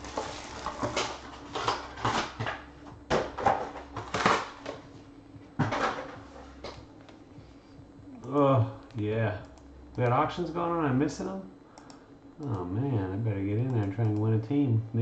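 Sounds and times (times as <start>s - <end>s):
card packs rustling and scraping: 0.0s - 4.9s.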